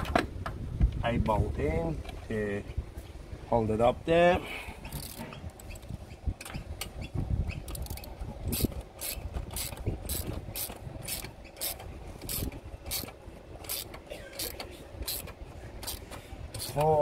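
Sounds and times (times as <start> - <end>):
ratchet pawl clicking: 4.8 - 6.6, 7.5 - 17.0.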